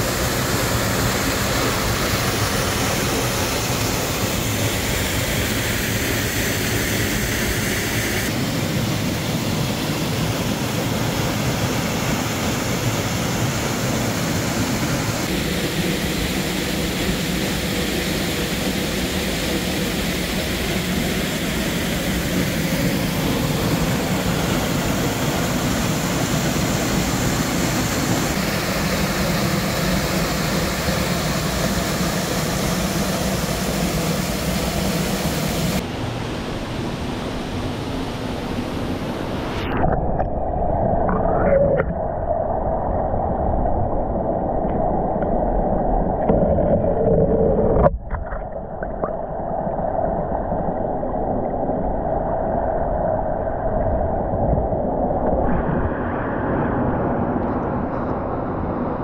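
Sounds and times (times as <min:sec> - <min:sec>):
waterfall rushing into pool: 0:00.0 - 0:40.2.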